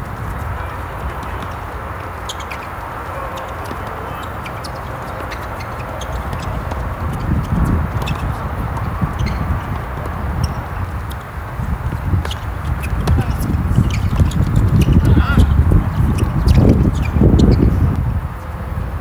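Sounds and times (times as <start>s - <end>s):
tennis ball bouncing: 0.4s - 11.3s, 11.9s - 15.2s.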